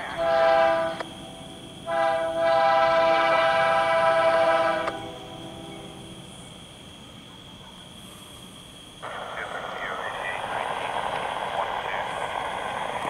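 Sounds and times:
locomotive air horn blasts: 0.0 - 1.1, 1.8 - 5.6
approaching train noise: 0.0 - 13.0.

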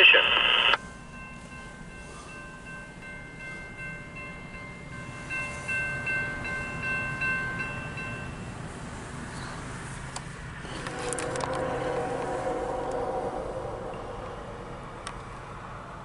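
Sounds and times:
railroad crossing bell ringing: 0.8 - 16.0
low steady rumble: 10.5 - 16.0.

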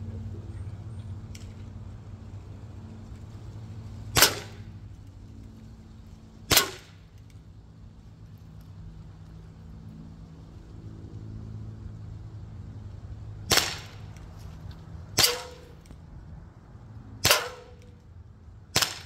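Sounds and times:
air pistol shots: 4.1 - 4.7, 6.5 - 7.0, 13.5 - 14.2, 15.2 - 15.8, 17.2 - 17.9, 18.7 - 19.0.

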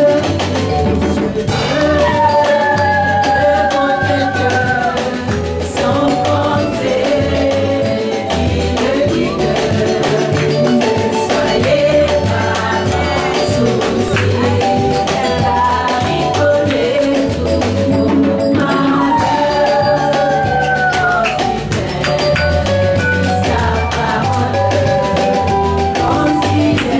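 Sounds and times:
musical accompaniment with beat: 0.0 - 26.9
woman singing into a microphone: 1.5 - 26.9
hands clapping: 10.0 - 11.0, 12.6 - 14.6, 20.6 - 22.8.

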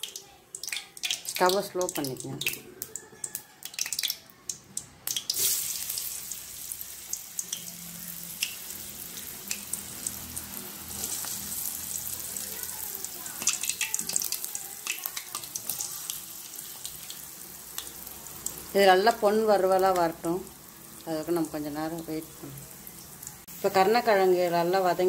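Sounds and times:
oil popping and crackling: 0.0 - 20.4
food sizzling in hot oil: 0.0 - 25.0.

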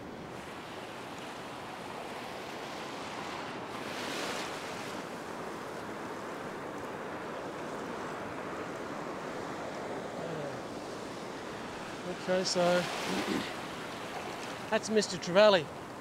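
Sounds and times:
ocean surf washing up beach: 0.0 - 16.0
wave crashing: 9.3 - 15.0.

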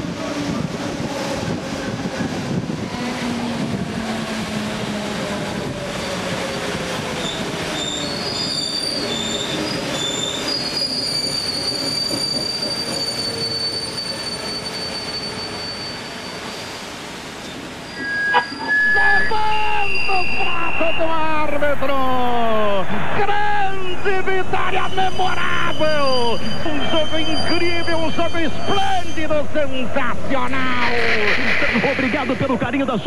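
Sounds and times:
train wheels rumbling on rails: 0.0 - 17.8
wheels squealing: 5.8 - 21.1, 24.8 - 29.4.

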